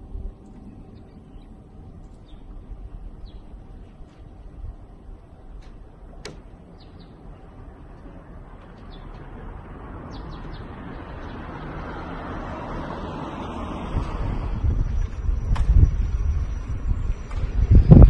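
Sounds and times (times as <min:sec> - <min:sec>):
steady outdoor rushing noise: 0:00.0 - 0:18.0
small birds chirping: 0:00.3 - 0:04.3, 0:06.4 - 0:07.6, 0:08.6 - 0:09.4, 0:10.0 - 0:12.0.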